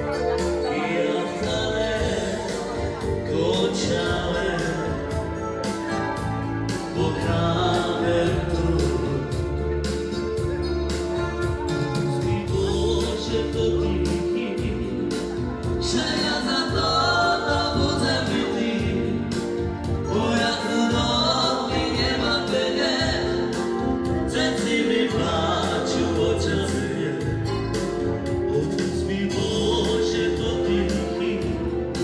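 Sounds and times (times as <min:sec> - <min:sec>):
live band dance music: 0:00.0 - 0:32.0
person singing: 0:00.0 - 0:32.0.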